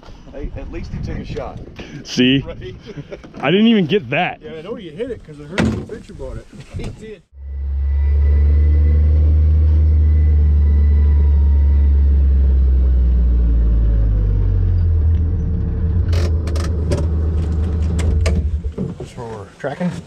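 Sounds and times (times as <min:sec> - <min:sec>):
vehicle engine droning: 0:07.3 - 0:19.3
sharp knocks and rattles: 0:16.0 - 0:19.3.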